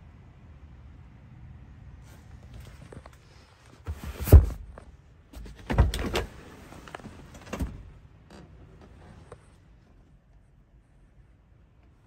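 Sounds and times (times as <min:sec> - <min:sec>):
thuds and clunks of car parts: 0:02.8 - 0:09.3.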